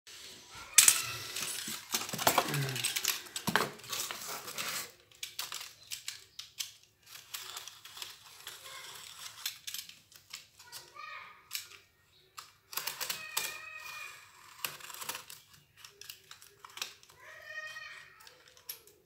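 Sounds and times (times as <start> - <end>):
cardboard rustling and scraping: 0.1 - 5.0.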